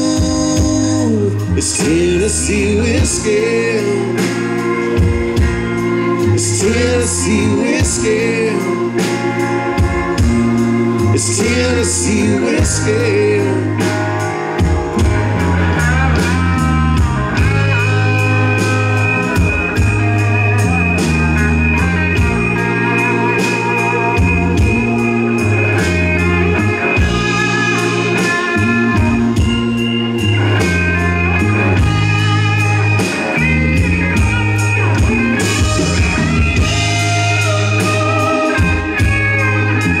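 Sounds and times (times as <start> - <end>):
electric guitar lead bending: 0.0 - 40.0
live rock band playing: 0.0 - 40.0.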